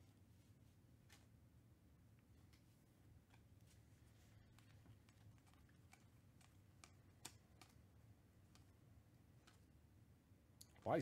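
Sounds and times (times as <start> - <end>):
cards clicking and snapping: 4.5 - 7.8.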